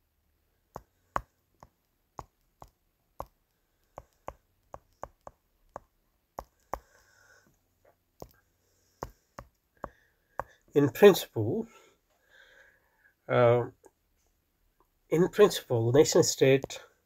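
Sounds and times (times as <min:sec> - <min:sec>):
stylus tapping on glass screen: 0:00.7 - 0:06.9, 0:09.0 - 0:10.6.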